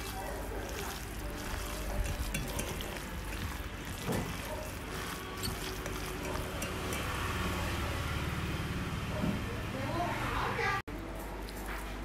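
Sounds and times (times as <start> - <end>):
hands squishing food in bowl: 0.0 - 7.9.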